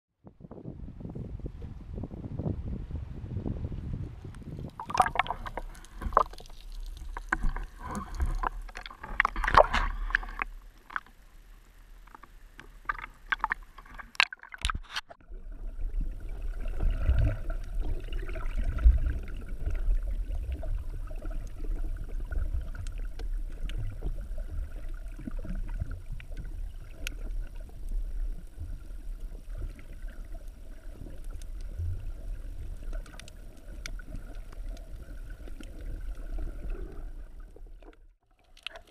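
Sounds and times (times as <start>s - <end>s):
underwater rumble of water: 0.2s - 38.9s
faint ticks: 25.7s - 36.3s.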